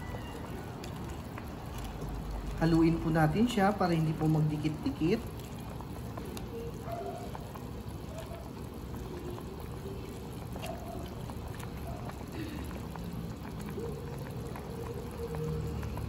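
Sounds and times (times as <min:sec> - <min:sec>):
broth boiling in a pot: 0:00.0 - 0:16.0
tongs stirring noodles: 0:00.0 - 0:16.0.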